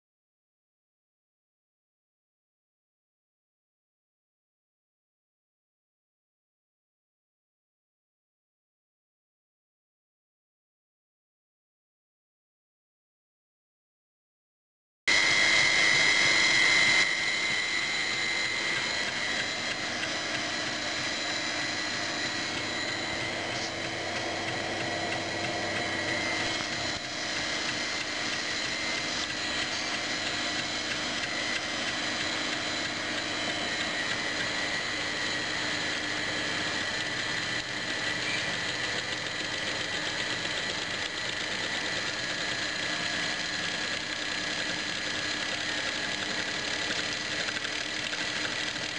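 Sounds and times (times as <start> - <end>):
generator hum with whine: 15.1 - 48.9.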